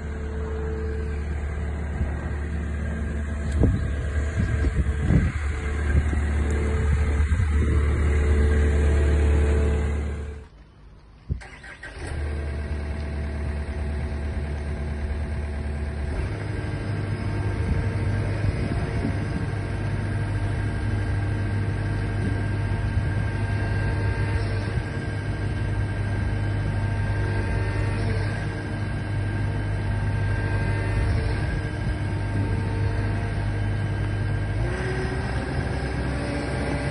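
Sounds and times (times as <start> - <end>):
excavator diesel engine running: 0.0 - 36.9.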